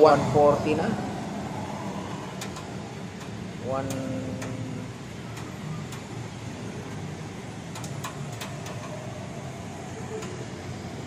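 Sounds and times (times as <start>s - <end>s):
air conditioner unit humming: 0.0s - 11.0s.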